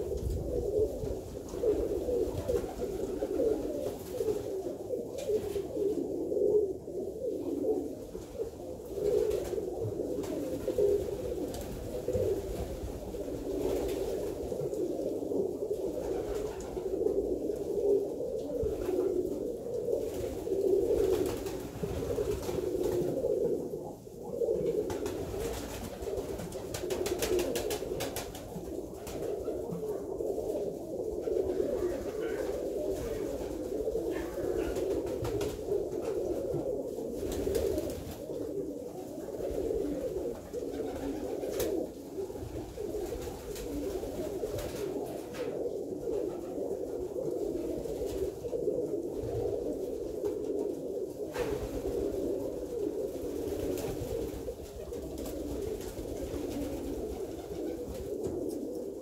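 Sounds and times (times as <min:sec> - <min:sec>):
pigeons cooing: 0:00.0 - 0:59.0.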